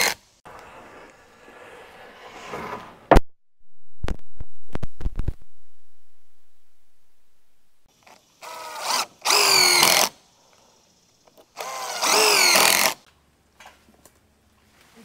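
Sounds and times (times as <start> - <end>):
power drill driving screws into metal: 8.4 - 10.2, 11.6 - 13.0.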